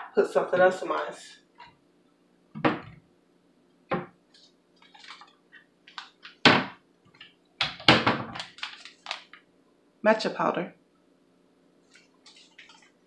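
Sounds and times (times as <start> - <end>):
objects knocking and clunking: 2.5 - 3.0, 3.9 - 4.2
plastic pouch crinkling: 4.4 - 6.4, 8.3 - 9.5, 11.9 - 13.0.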